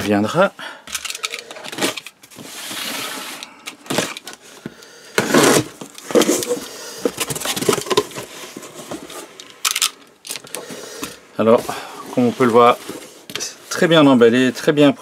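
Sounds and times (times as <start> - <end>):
box cutter slitting tape: 5.2 - 6.6.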